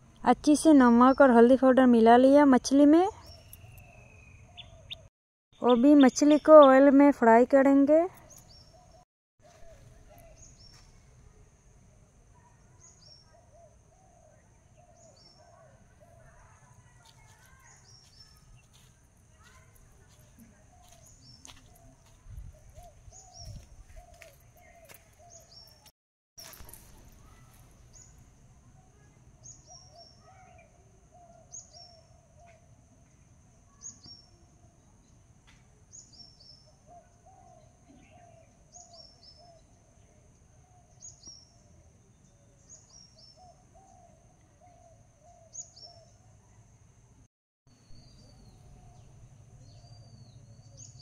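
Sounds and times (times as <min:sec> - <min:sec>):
high falling bird chirp: 0:03.2 - 0:06.9.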